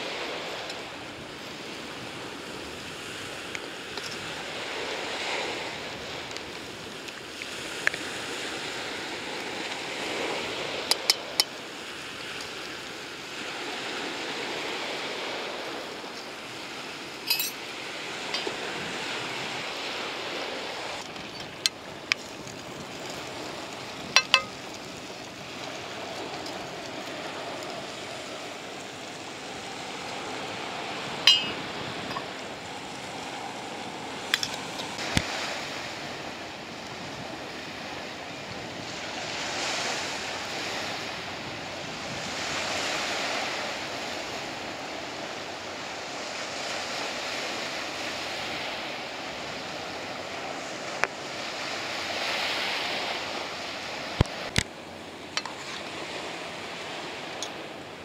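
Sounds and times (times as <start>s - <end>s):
surf washing on a beach: 0.0s - 58.0s
spoon clinking on frying pan: 24.2s - 24.5s, 31.3s - 31.6s.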